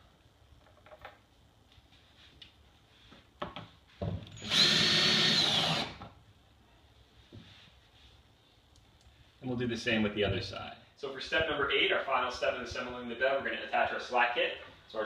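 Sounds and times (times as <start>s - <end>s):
cordless drill driving screw: 4.4s - 6.1s.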